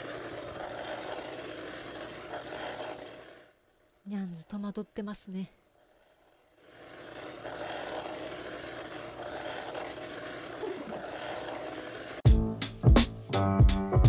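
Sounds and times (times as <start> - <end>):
toy vibration motor buzzing: 0.0 - 3.6, 5.7 - 12.2.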